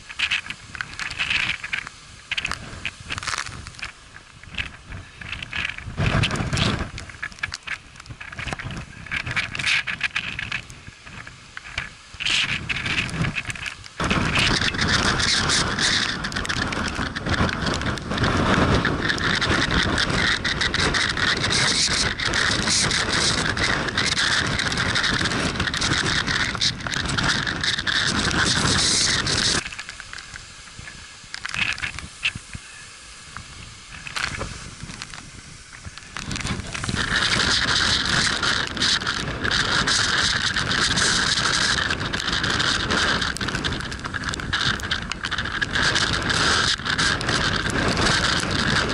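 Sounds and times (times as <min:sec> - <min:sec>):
wind buffeting microphone: 0:00.0 - 0:48.9.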